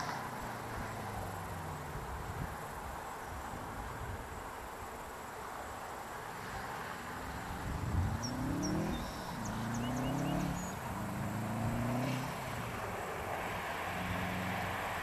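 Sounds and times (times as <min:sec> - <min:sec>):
car engine accelerating: 0:07.9 - 0:15.0
birds chirping faintly: 0:08.1 - 0:12.3.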